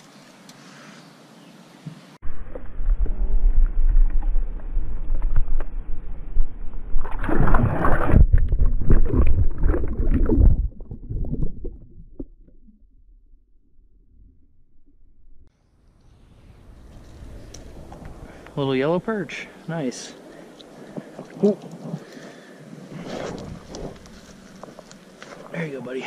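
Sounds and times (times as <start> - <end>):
water churning and splashing: 7.0 - 12.7.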